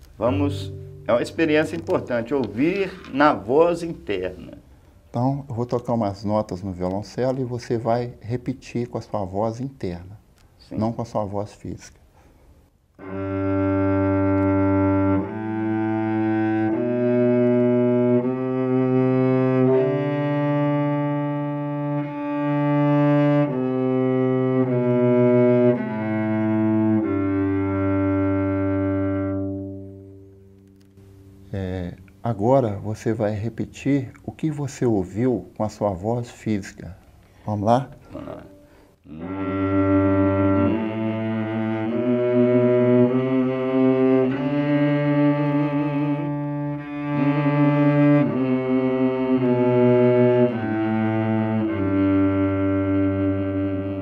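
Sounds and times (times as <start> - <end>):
cello bowed notes: 0.0 - 4.7, 12.9 - 32.9, 38.0 - 54.0.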